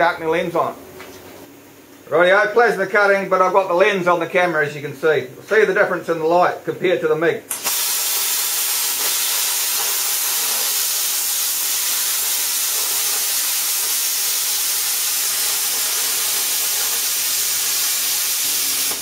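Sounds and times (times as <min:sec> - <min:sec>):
plasma cutter arc hissing: 0:07.5 - 0:19.0.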